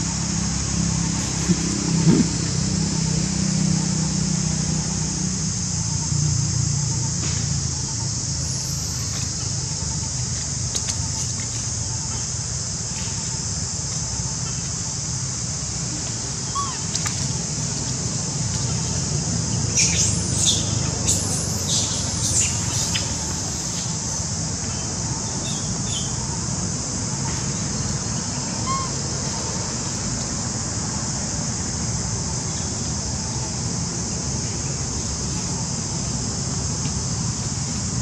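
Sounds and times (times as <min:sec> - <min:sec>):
steady high-pitched hiss: 0:00.0 - 0:38.0
high chirps or squeaks: 0:28.6 - 0:29.0.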